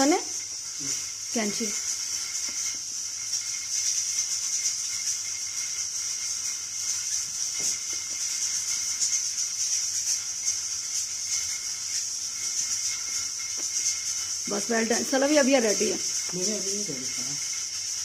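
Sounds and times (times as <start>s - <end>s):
meat sizzling in oil: 0.0s - 18.0s.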